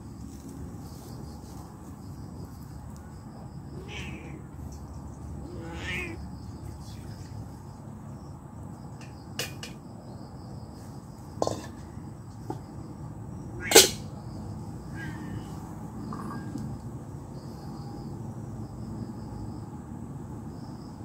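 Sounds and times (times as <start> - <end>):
metal cookware clinking: 11.4 - 11.8, 13.7 - 14.0.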